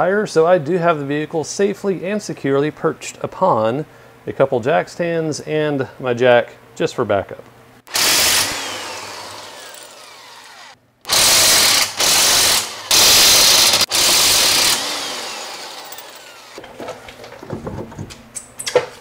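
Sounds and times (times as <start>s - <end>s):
impact wrench hammering: 7.9s - 16.6s
impact wrench falling whine: 7.9s - 18.9s.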